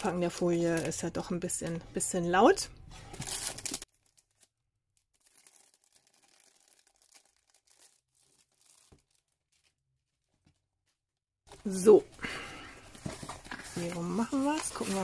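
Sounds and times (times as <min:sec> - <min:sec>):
plastic film crinkling: 0:03.1 - 0:10.4, 0:11.5 - 0:15.0
plastic rustles: 0:05.2 - 0:10.6, 0:11.5 - 0:15.0.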